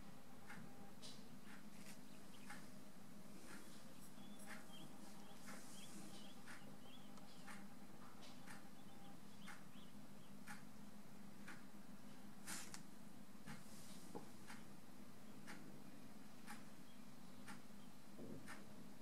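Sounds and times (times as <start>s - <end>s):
brush ticking on paper: 3.4s - 9.9s, 12.4s - 12.8s
faint high chirps: 3.6s - 7.6s.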